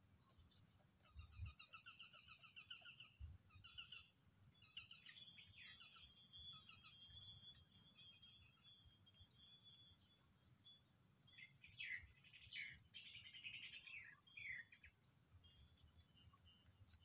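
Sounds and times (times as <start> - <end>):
faint bird chirps: 0.0 - 17.0
steady high-pitched hum: 0.0 - 17.0.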